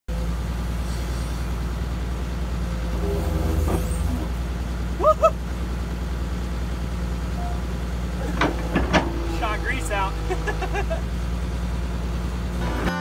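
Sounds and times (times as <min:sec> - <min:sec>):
steady low engine hum: 0:00.1 - 0:13.0
short rising chirps: 0:07.3 - 0:07.7.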